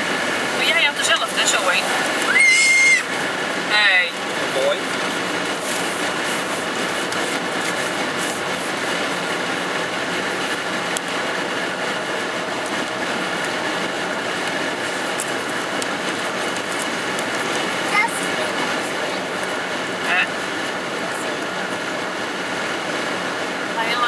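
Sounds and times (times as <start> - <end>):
car cabin tyre and wind rumble: 0.0 - 24.0.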